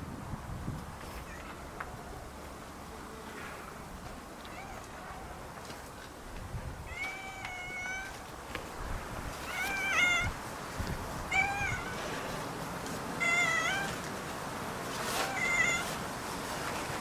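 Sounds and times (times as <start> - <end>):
cat meowing: 4.4 - 5.4, 6.9 - 8.2, 9.4 - 10.4, 11.3 - 12.2, 13.2 - 14.0, 15.1 - 16.0.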